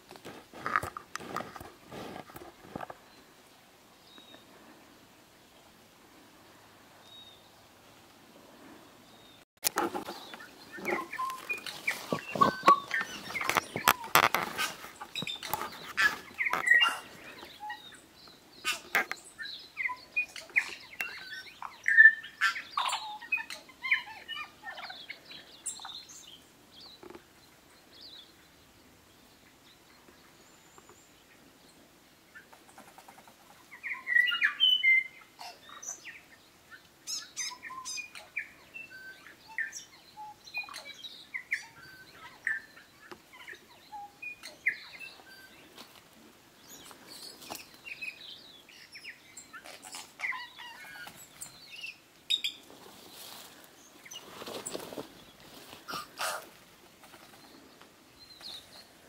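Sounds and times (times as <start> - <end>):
bird singing and chirping: 9.1 - 28.6, 33.7 - 45.8, 46.6 - 52.6.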